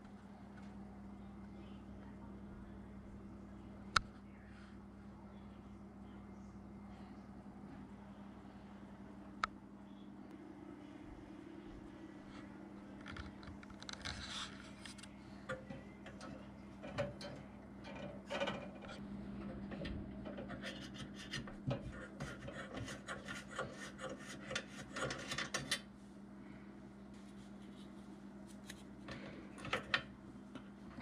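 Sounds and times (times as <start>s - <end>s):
steady low hum: 0.0s - 31.0s
scraping and clicking metal fittings: 13.1s - 25.9s.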